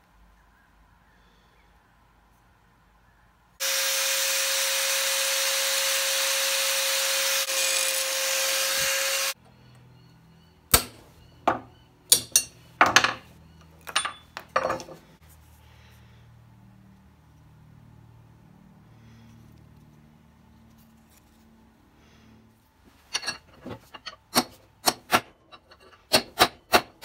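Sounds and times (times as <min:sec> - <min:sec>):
power tool running: 0:03.6 - 0:09.4
sharp hammer strikes: 0:10.7 - 0:11.0.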